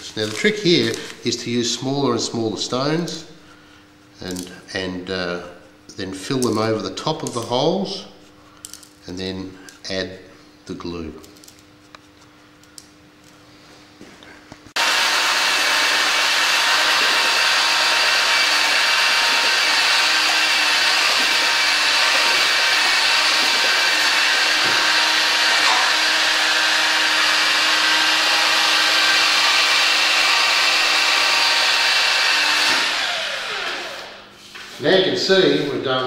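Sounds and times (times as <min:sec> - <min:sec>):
abrasive rasping on stone: 0:14.8 - 0:31.0
power drill motor whine: 0:14.8 - 0:34.2.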